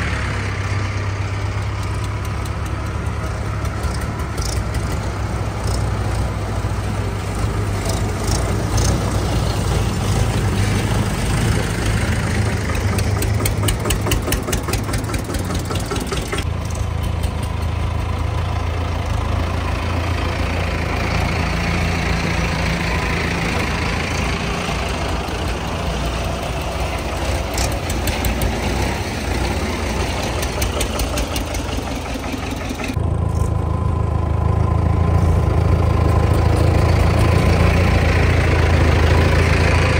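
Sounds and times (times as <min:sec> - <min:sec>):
diesel tractor engine running: 0:00.0 - 0:39.9
fast ticking rattle: 0:12.7 - 0:17.8.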